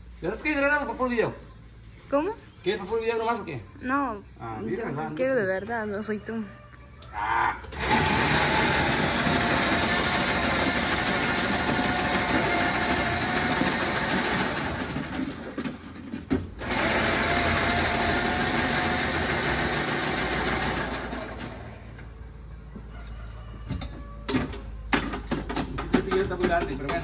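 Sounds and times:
electric ice shaver whirring: 7.7s - 15.2s, 16.6s - 21.6s.

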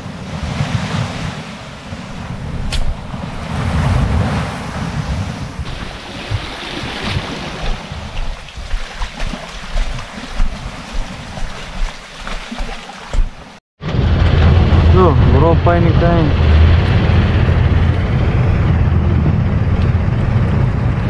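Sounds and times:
wind buffeting microphone: 0.0s - 11.9s, 13.9s - 21.0s
waves lapping on rocks: 5.6s - 13.6s.

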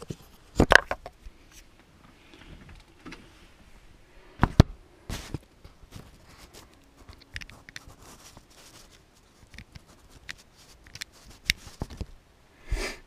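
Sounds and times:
fingers clicking and rubbing on camera: 5.9s - 12.2s.

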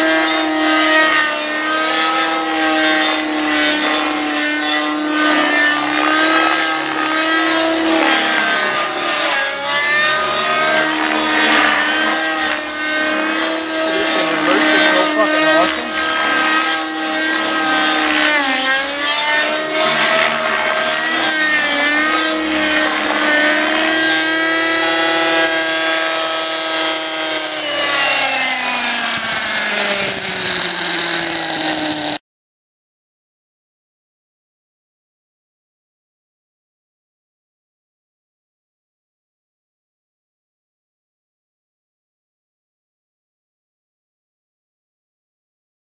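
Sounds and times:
radio-controlled helicopter engine and rotors: 0.0s - 32.2s.

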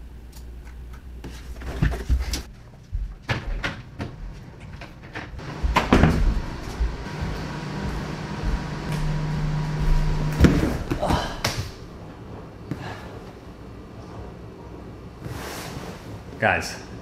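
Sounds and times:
person moving about knocking: 5.3s - 11.4s
body flopping onto leather couch: 5.6s - 11.8s.

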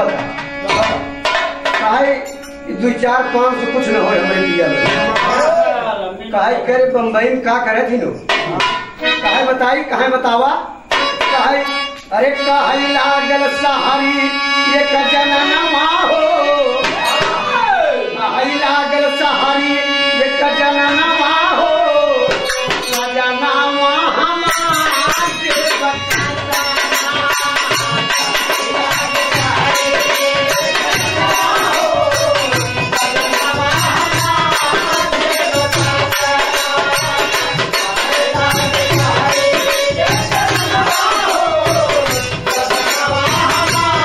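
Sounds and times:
hand drum rhythm: 0.0s - 2.6s, 24.5s - 44.0s
jingling percussion: 0.0s - 5.7s, 8.2s - 15.5s, 16.8s - 17.6s, 22.3s - 23.4s, 24.3s - 44.0s.

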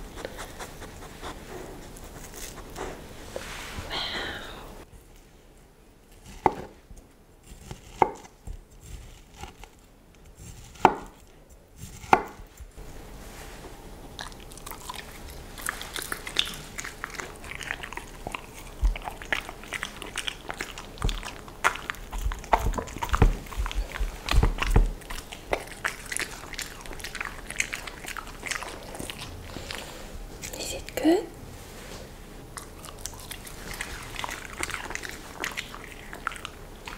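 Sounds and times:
dog chewing and licking: 14.1s - 30.6s, 32.5s - 36.9s.

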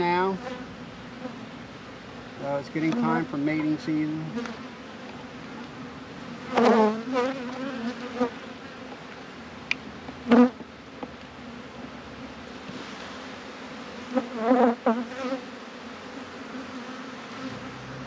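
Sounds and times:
bees humming: 0.0s - 18.0s
loud wavering bee buzz: 2.7s - 8.9s, 12.9s - 18.0s.

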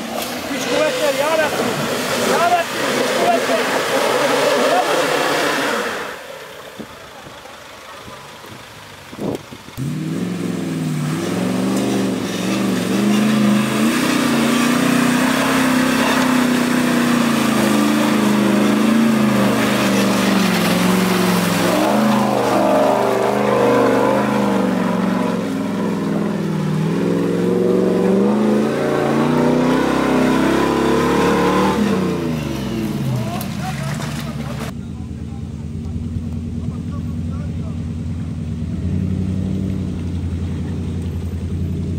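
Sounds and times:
truck engine revving hard: 0.0s - 6.6s, 9.1s - 34.8s, 37.4s - 40.9s.

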